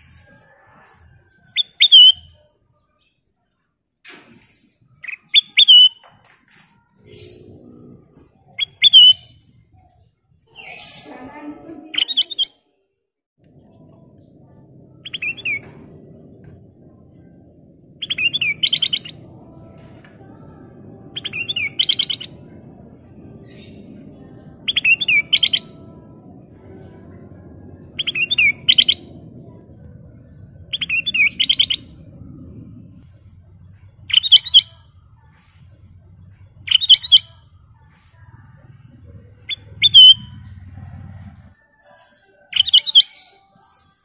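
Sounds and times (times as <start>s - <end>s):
bird singing warbled phrases: 1.0s - 2.4s, 5.0s - 6.0s, 7.0s - 9.4s, 10.5s - 12.6s, 13.6s - 17.4s, 18.0s - 34.9s, 36.2s - 37.4s, 38.6s - 40.9s, 42.6s - 43.5s
faint low hum: 6.7s - 11.9s, 13.4s - 41.8s.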